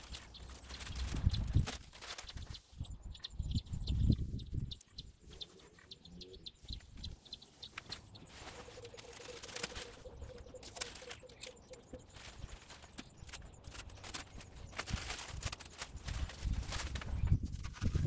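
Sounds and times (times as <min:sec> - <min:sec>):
masking tape peeling crackle: 0:00.0 - 0:02.5, 0:07.8 - 0:18.0.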